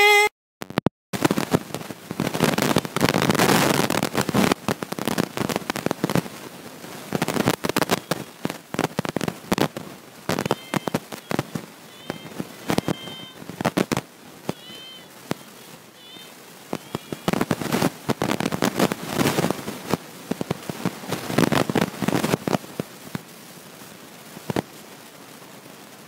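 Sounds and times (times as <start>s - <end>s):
crackling sharp clicks: 0.6s - 6.3s, 7.1s - 15.5s, 16.7s - 23.2s, 24.4s - 24.7s.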